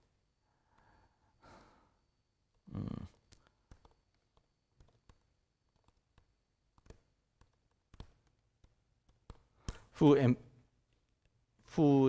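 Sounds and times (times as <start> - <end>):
keyboard keys typing: 3.1 - 9.8.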